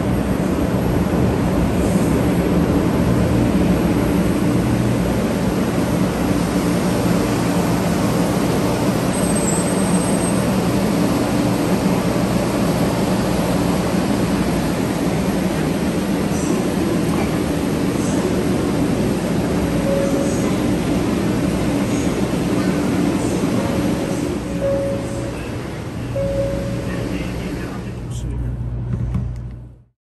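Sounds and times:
train slowing to a stop: 0.0 - 29.9.

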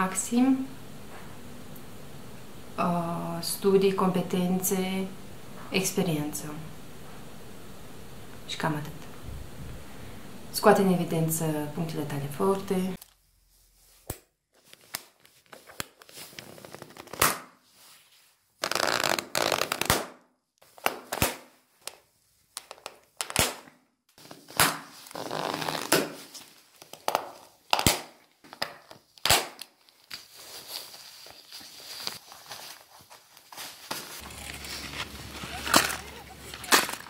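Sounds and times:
rustling: 13.0 - 19.9, 24.2 - 37.0
ski boot buckles clicking: 18.6 - 20.0.

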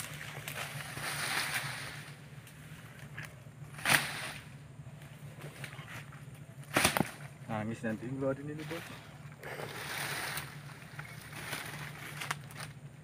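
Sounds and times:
dry fronds rustling: 0.0 - 13.0
sharp crack: 3.2 - 4.6, 6.6 - 7.4.

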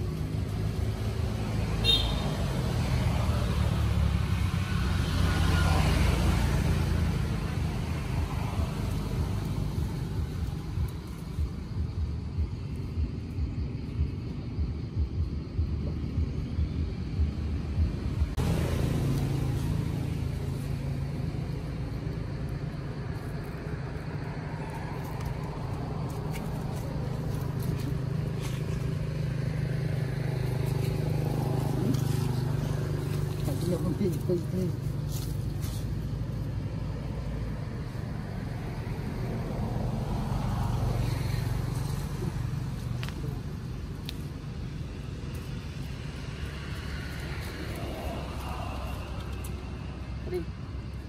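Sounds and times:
low steady rumble: 7.2 - 40.1.

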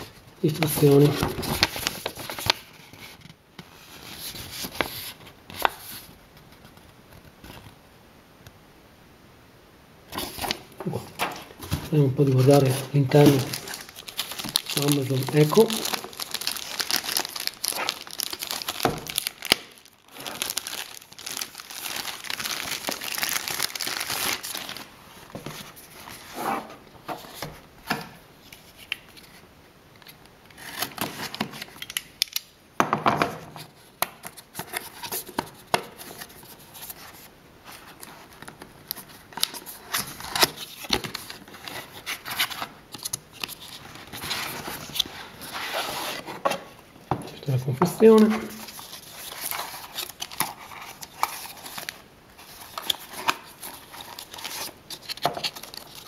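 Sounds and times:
plastic bag crinkling: 10.2 - 25.8, 47.4 - 56.0
cardboard box opening: 10.2 - 27.4.

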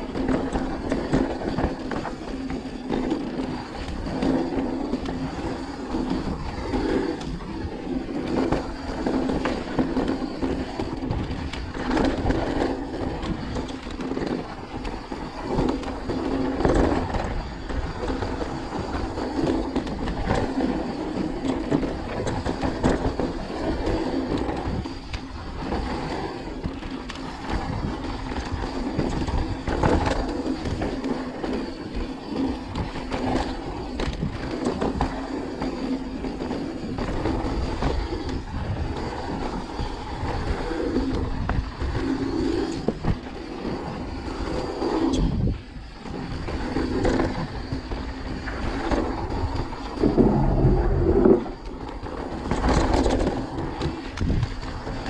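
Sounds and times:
bike tyres crunching over dirt: 0.0 - 55.0
wind on microphone: 0.0 - 55.0.

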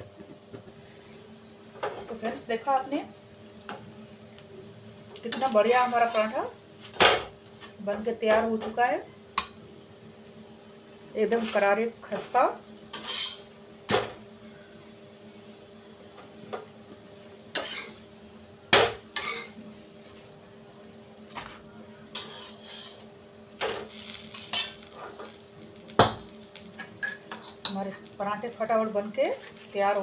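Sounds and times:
spatula clanking on iron pans: 12.9 - 13.4, 17.5 - 18.0, 22.1 - 23.0, 26.0 - 27.9.

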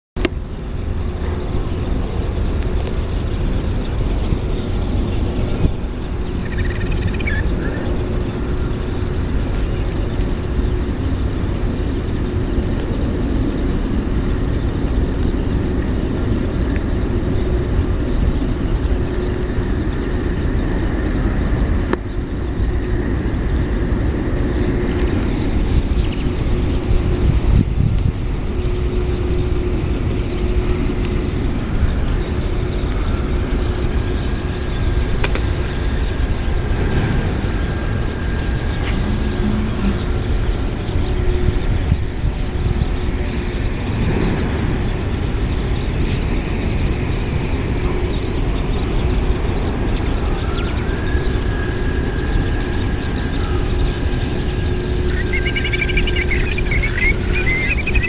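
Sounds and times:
low droning rumble: 0.2 - 58.0
high chirping call: 6.2 - 8.0, 50.2 - 58.0.

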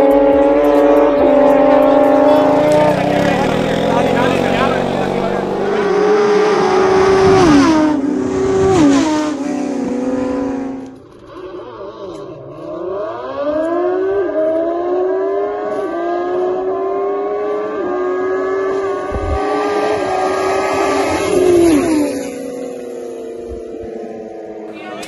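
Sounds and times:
racing motorcycles revving: 0.0 - 25.0.

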